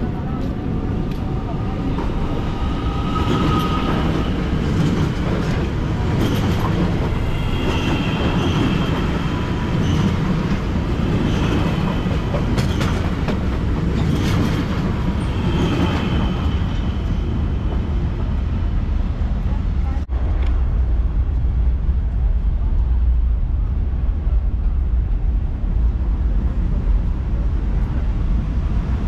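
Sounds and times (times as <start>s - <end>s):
rail clicks: 0.0s - 18.4s
train wheels rumbling on rail: 0.0s - 29.0s.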